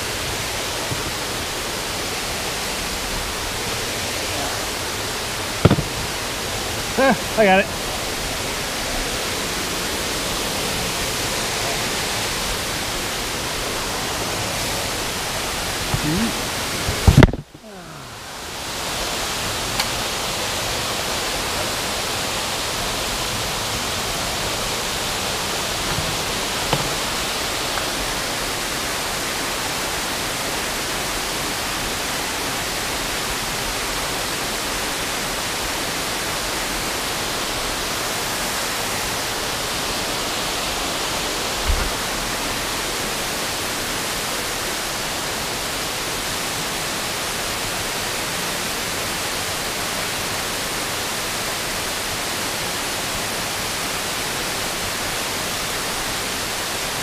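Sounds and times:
creek water cascading: 0.0s - 57.0s
sharp knock: 5.6s - 6.2s.

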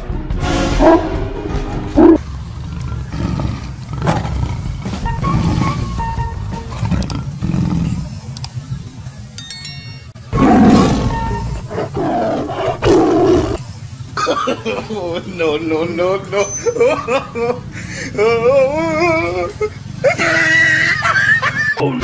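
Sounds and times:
background music: 0.0s - 2.2s, 4.0s - 7.7s, 9.4s - 12.8s
tiger roaring: 2.0s - 6.0s, 6.7s - 8.3s, 10.4s - 13.7s.

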